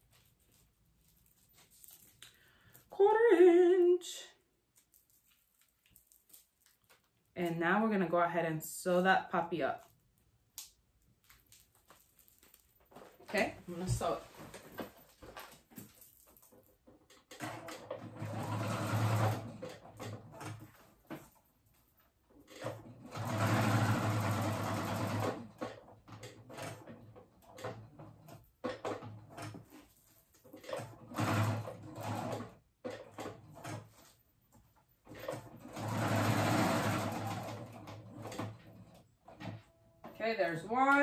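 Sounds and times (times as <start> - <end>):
sewing machine stitching: 17.1 - 21.3, 22.4 - 34.2, 35.0 - 39.8.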